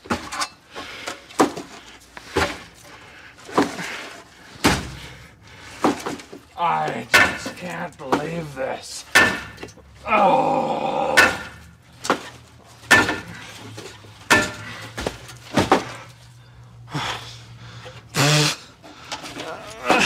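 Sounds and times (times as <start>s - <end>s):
metal knocks and clanks: 5.8s - 8.5s, 9.1s - 9.8s, 11.2s - 16.4s.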